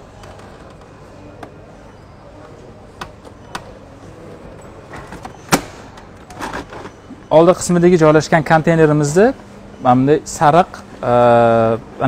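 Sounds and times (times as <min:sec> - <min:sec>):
loud plastic clack: 0:05.0 - 0:07.0.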